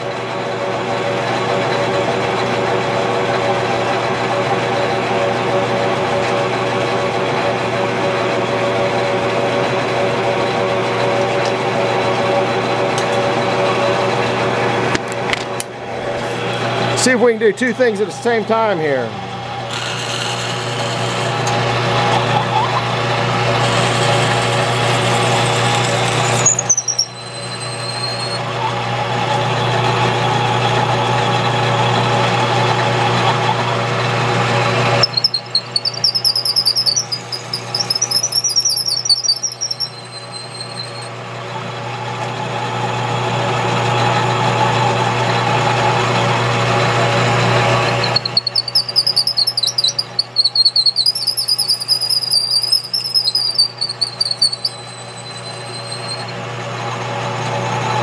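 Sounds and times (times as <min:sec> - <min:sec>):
lathe motor hum: 0:00.0 - 0:50.0
drill bit rasping into wood: 0:19.7 - 0:21.6, 0:23.5 - 0:28.4, 0:35.0 - 0:41.1, 0:47.9 - 0:56.3
high warbling squeals: 0:35.0 - 0:41.1, 0:47.8 - 0:56.3.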